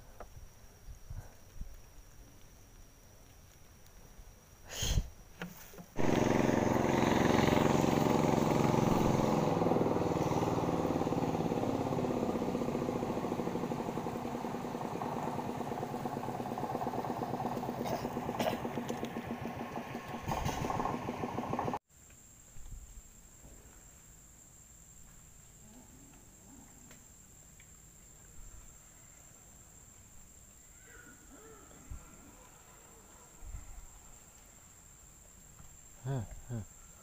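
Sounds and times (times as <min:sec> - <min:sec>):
small boat engine running: 0:06.0 - 0:21.8.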